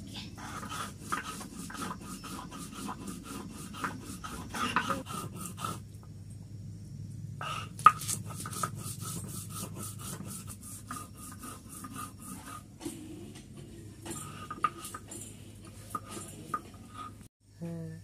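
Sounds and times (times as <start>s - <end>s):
roller scraping paste on stone slab: 0.4s - 5.9s, 7.4s - 13.4s.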